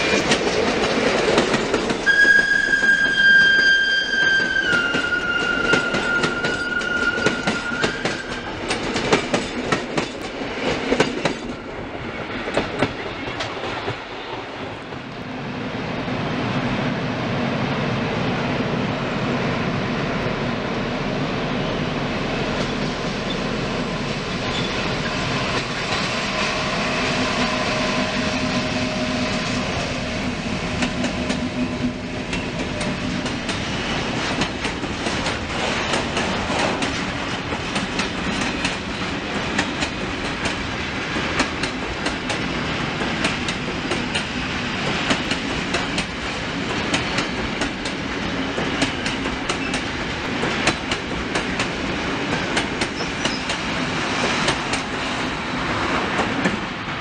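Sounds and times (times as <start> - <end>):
train wheels clacking over rail joints: 0.0 - 2.1, 4.7 - 11.6, 30.8 - 56.7
locomotive droning: 1.9 - 8.8, 20.8 - 34.7.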